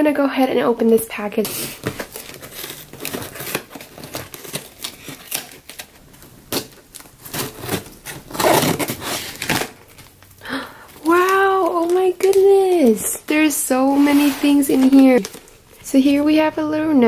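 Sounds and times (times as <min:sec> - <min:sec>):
cardboard rustling: 0:01.1 - 0:16.2
scissors cutting packing tape: 0:06.5 - 0:09.7.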